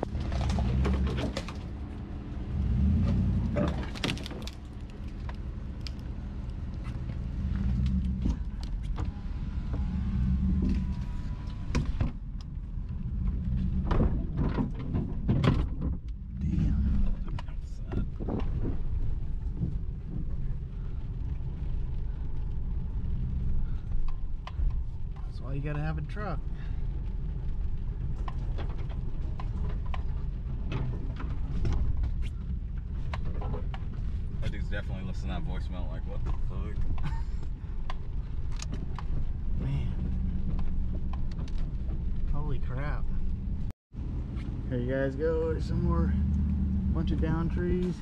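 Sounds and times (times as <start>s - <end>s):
knocks and rattles: 0.0s - 1.9s, 11.6s - 34.6s, 36.1s - 43.7s
truck engine rumble: 0.0s - 48.0s.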